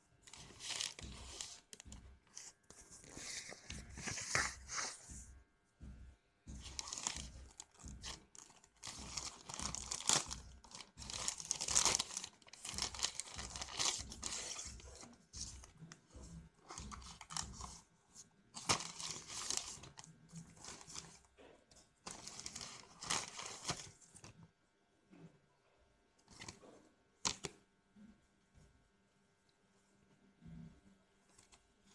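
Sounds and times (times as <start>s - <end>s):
plastic bag crinkling and tearing: 0.3s - 1.8s, 6.7s - 15.5s, 16.7s - 17.8s, 18.6s - 21.2s, 22.1s - 24.0s.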